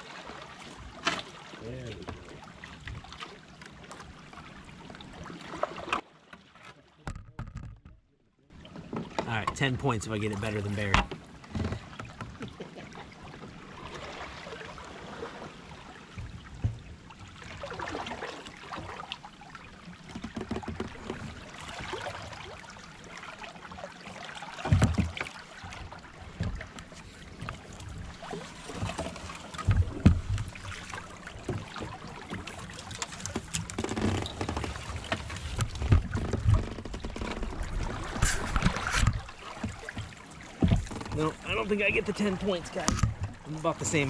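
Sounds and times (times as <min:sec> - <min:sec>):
water splashing: 0:00.0 - 0:07.1, 0:08.5 - 0:44.0
kayak paddle strokes: 0:00.0 - 0:08.0, 0:08.6 - 0:44.0
dull thumps: 0:33.6 - 0:37.4.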